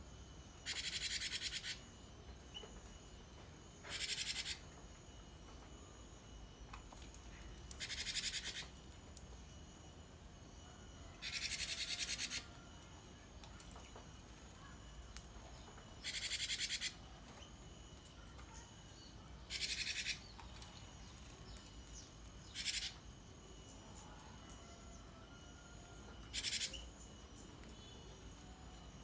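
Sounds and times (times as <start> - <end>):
bird buzzing rattle: 0.6 - 2.7, 3.8 - 4.7, 6.9 - 8.9, 11.2 - 12.8, 15.5 - 23.8, 26.2 - 28.0.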